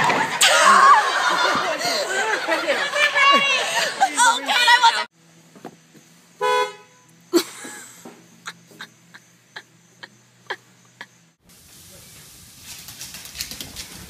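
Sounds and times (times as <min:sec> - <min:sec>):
car horn toot: 0:06.4 - 0:07.2.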